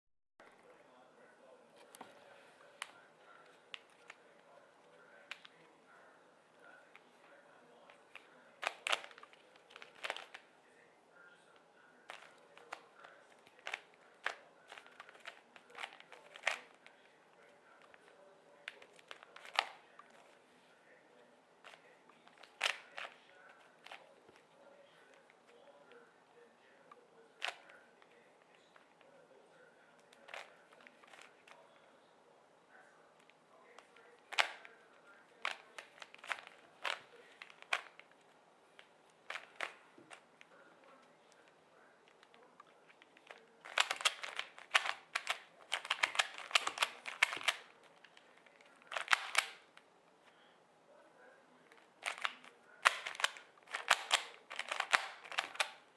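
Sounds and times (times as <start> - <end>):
puzzle cube plastic clicks: 8.1 - 10.4, 13.5 - 16.8, 18.6 - 19.8, 21.7 - 24.4, 35.4 - 38.2, 39.2 - 40.2, 42.1 - 49.8, 51.8 - 55.9
puzzle cube clicking as twisted: 43.6 - 47.7, 48.9 - 49.6, 52.0 - 55.8.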